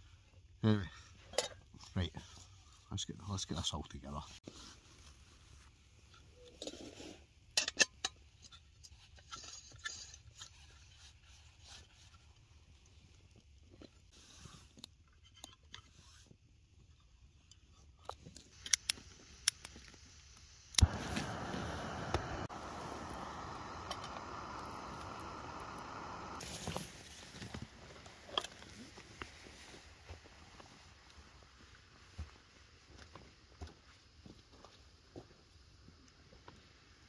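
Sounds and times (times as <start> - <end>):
camping stove clicks and scrapes: 6.1 - 29.4
gas burner hiss: 18.6 - 28.6.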